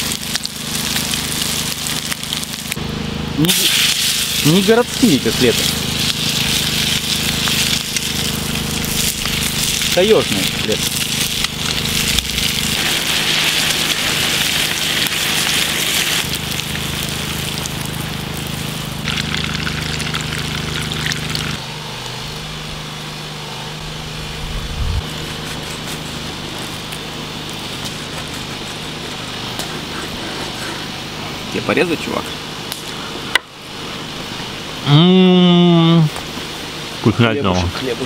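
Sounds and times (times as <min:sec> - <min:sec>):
fish sizzling in frying pan: 0:00.0 - 0:02.8, 0:03.4 - 0:21.6
petrol generator humming: 0:00.0 - 0:38.0.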